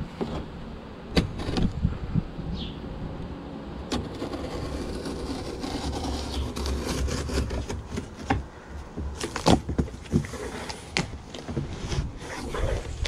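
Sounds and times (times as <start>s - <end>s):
scissors scraping packing tape: 3.9s - 8.2s.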